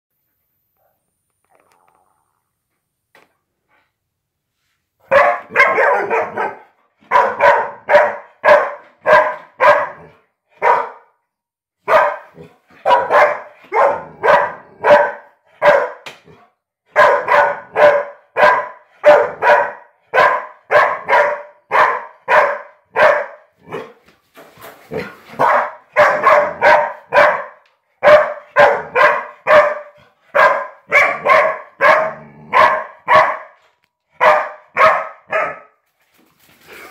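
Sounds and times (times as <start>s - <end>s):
dog barking: 5.0s - 11.2s, 11.8s - 24.0s, 24.9s - 35.8s.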